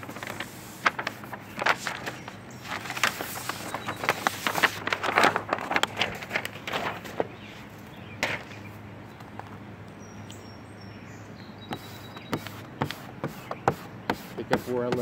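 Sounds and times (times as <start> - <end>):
paper backing crackling: 0.0 - 7.5.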